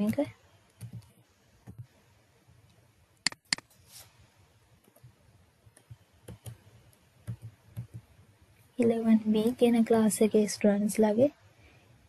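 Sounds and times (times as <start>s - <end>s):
computer keyboard keystrokes: 0.8s - 1.1s, 7.2s - 8.1s.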